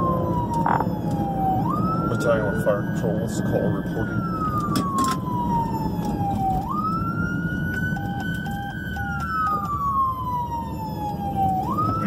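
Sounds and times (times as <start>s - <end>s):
engine and road rumble: 0.0s - 12.0s
siren wailing: 0.0s - 12.0s.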